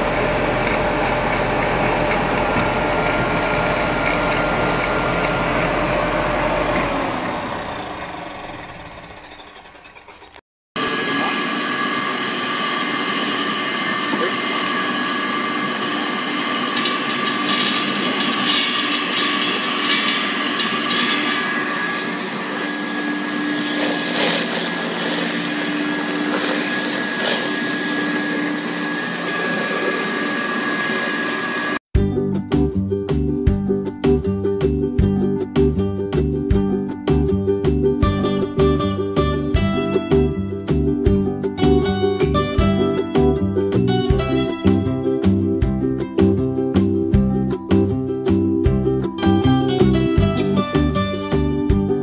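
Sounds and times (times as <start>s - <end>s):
colloid mill whining: 0.0s - 31.8s
mill clatter: 16.4s - 22.0s.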